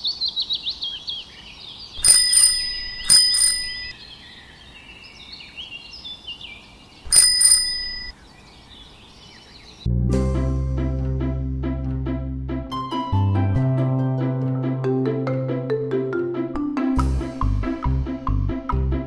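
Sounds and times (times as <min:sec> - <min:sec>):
birdsong: 0:00.0 - 0:09.9
bicycle bell ringing: 0:02.0 - 0:03.9, 0:07.1 - 0:08.1.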